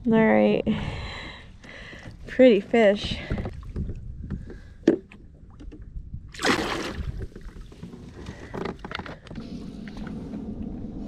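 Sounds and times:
clicks and knocks on kayak: 0:03.3 - 0:05.9, 0:07.1 - 0:09.4
water splash: 0:06.3 - 0:07.5.

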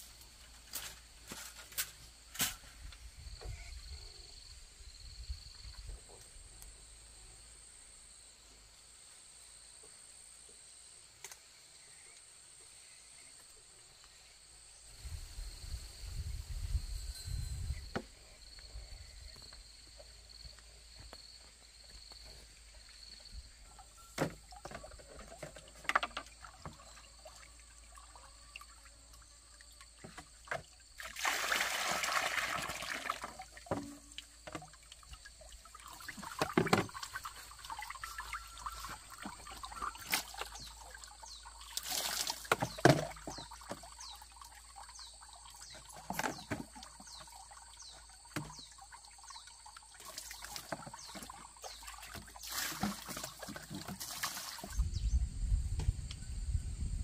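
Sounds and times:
water pouring and splashing: 0:22.2 - 0:55.0
buckets knocking: 0:31.8 - 0:41.0, 0:42.0 - 0:44.1.

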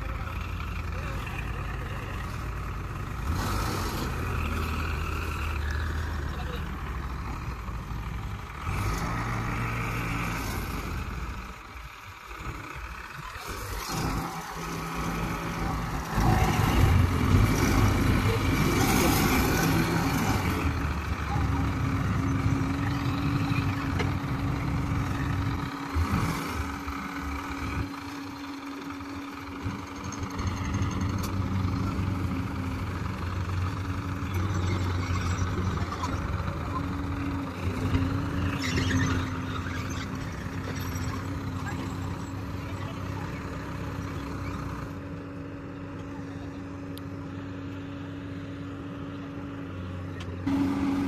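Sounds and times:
heavy machinery diesel engines idling: 0:00.0 - 0:51.0.

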